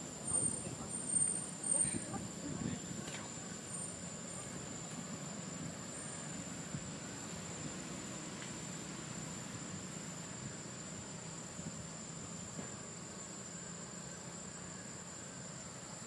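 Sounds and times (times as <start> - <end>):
high-pitched insect drone: 8.6 - 16.0.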